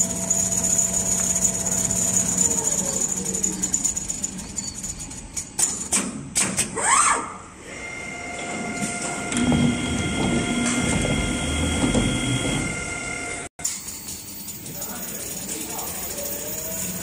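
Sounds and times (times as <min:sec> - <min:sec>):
sewing machine motor whine: 0:00.0 - 0:05.3, 0:14.4 - 0:17.0.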